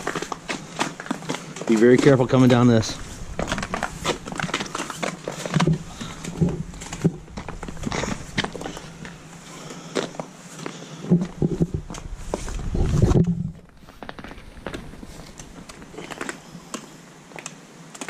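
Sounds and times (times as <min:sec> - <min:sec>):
footsteps crunching on icy slush: 0:00.0 - 0:10.8, 0:13.6 - 0:16.9
low rumble: 0:02.7 - 0:09.6.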